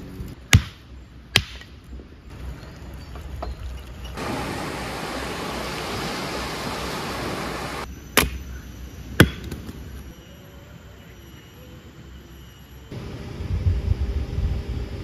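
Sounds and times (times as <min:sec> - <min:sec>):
faint outdoor background: 0:00.0 - 0:15.0
axe chopping firewood: 0:00.5 - 0:01.7, 0:08.2 - 0:08.4, 0:09.2 - 0:09.8.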